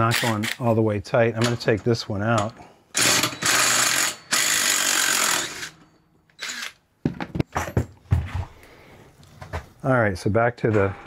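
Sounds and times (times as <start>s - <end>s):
parts clicking and knocking: 1.4s - 8.3s
power drill running: 3.0s - 5.8s, 6.4s - 6.8s.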